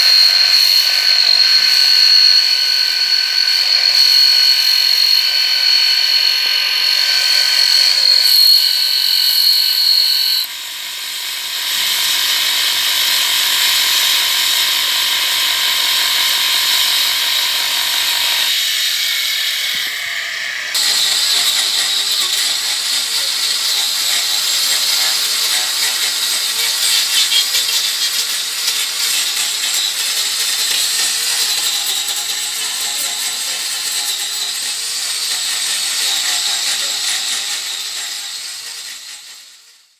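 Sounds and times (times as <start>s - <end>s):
grinder grinding into wood: 0.0s - 39.7s
angle grinder whining: 0.0s - 39.9s.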